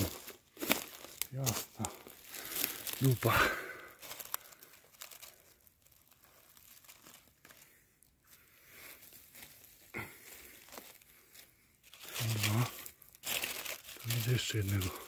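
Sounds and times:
rustling of forest-floor litter: 0:00.0 - 0:15.0
sharp twig crackle: 0:12.0 - 0:15.0.

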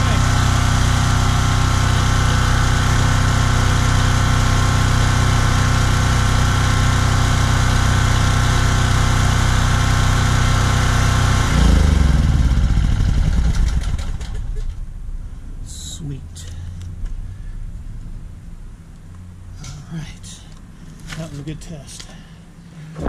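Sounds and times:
generator engine running: 0:00.0 - 0:15.2.

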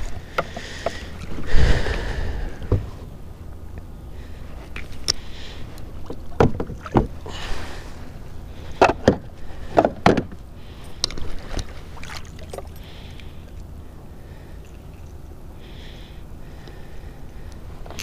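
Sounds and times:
fish splashing in water: 0:11.1 - 0:13.6.

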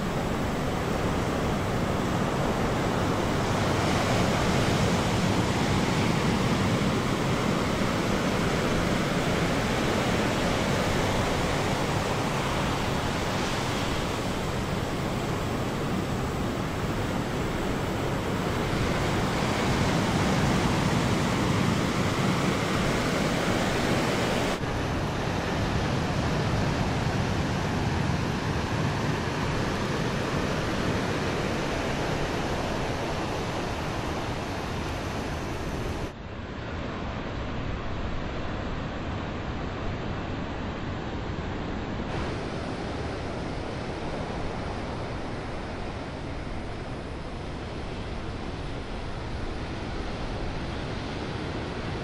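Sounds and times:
ocean waves breaking: 0:00.0 - 0:36.1.

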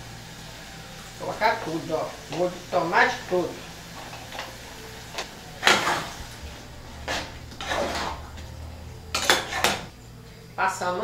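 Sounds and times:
cookware knocking and scraping: 0:07.0 - 0:09.9.

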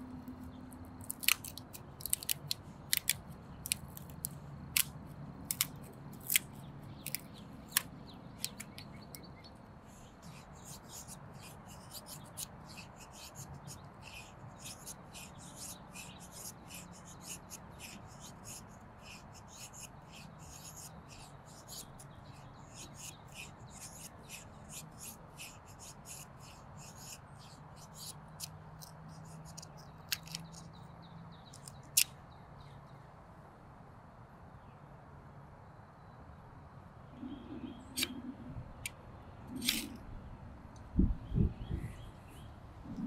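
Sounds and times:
knife shaving wood: 0:00.6 - 0:30.8, 0:39.6 - 0:40.0.

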